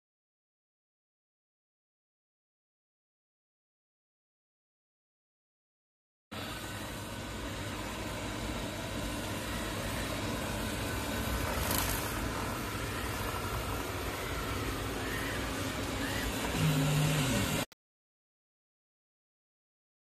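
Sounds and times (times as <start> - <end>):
short low hum: 6.4 - 17.7
robot vacuum whirring: 7.7 - 17.7.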